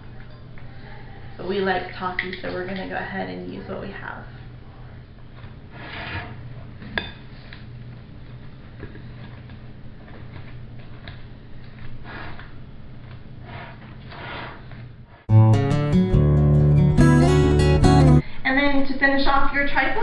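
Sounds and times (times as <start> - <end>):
acoustic guitar music: 15.3 - 18.2.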